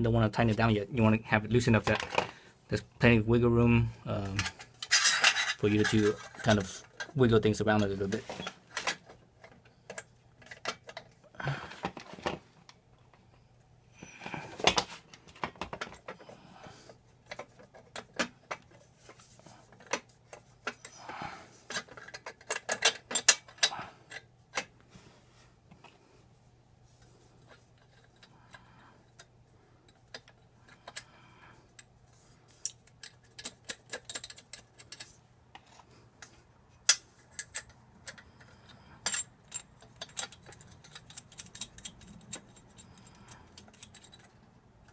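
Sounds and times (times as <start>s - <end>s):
metal parts clinking: 4.2s - 7.2s, 21.7s - 24.6s, 32.5s - 35.2s, 36.8s - 44.9s
metal scraping: 4.2s - 7.2s.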